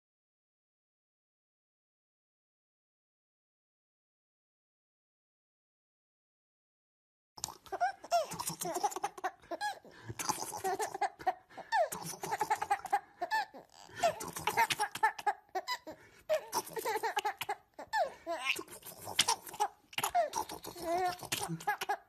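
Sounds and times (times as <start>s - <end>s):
baby giggling: 7.4s - 22.0s.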